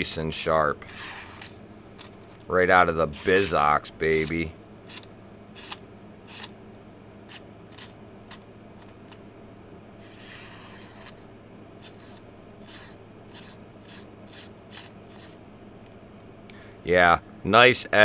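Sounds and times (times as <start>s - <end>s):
knife slicing paper: 0.9s - 1.6s, 3.1s - 6.5s, 10.0s - 11.2s, 11.8s - 15.4s.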